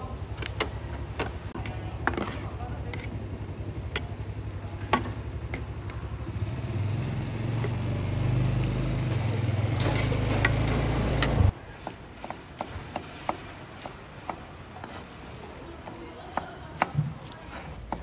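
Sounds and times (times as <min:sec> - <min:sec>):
small engine running: 0:05.9 - 0:11.5.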